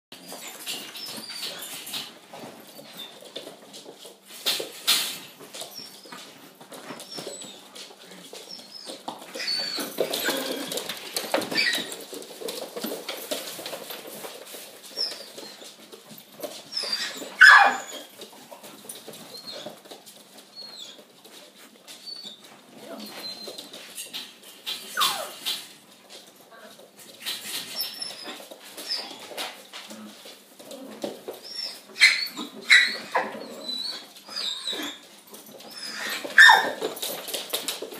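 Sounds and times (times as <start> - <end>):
puppies yipping and whining: 0.2 - 3.2, 5.5 - 7.8, 8.4 - 12.2, 14.8 - 15.8, 16.5 - 18.3, 18.9 - 21.1, 21.9 - 25.6, 27.4 - 29.5, 30.7 - 37.2
puppy squealing: 8.5 - 10.7, 16.7 - 18.1, 25.0 - 25.4, 31.4 - 35.0, 35.7 - 36.8.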